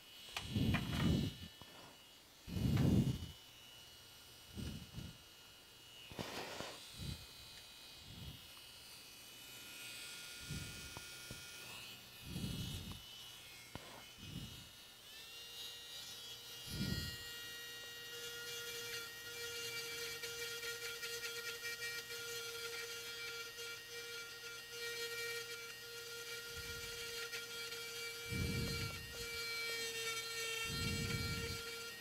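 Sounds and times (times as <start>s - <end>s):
electric rotary tool whining: 0.0s - 32.0s
lower stronger whine: 0.3s - 3.4s, 4.4s - 5.2s.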